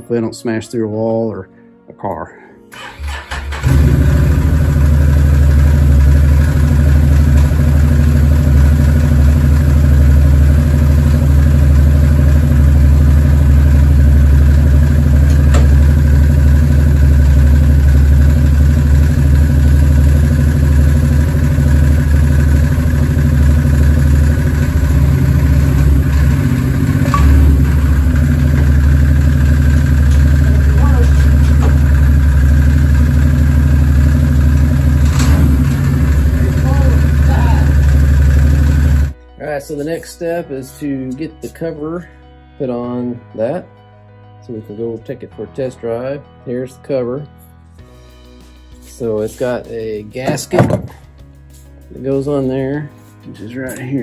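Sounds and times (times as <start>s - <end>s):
engine idling loudly: 3.6s - 39.2s.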